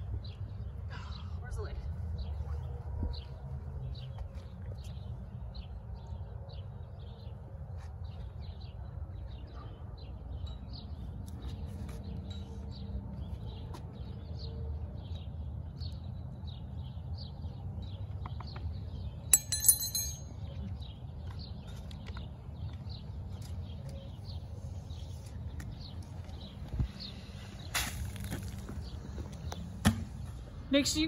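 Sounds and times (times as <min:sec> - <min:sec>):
sharp clinks: 0:19.3 - 0:20.4.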